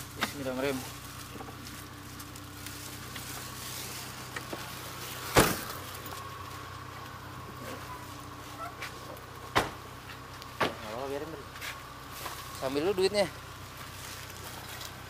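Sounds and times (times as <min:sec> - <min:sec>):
car engine idling: 0:00.0 - 0:15.0
car door thump: 0:05.3 - 0:05.8, 0:09.5 - 0:09.8.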